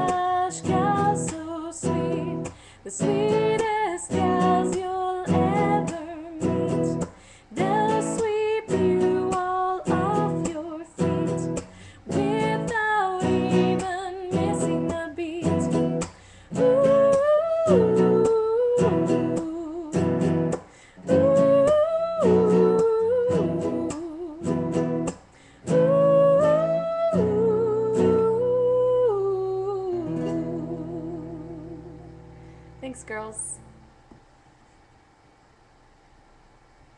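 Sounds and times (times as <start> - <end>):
woman singing: 0.0 - 32.2
acoustic guitar strumming: 0.0 - 34.0.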